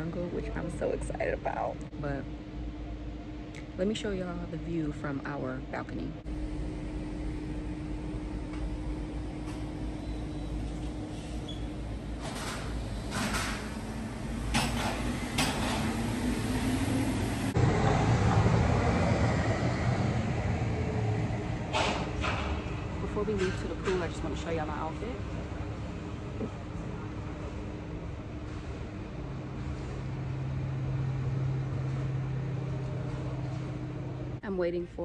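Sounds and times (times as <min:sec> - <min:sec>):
sliding door opening: 0:09.4 - 0:19.2.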